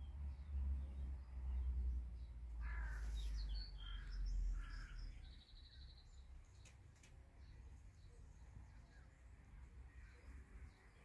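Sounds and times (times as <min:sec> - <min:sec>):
crow caws: 0:02.6 - 0:05.1.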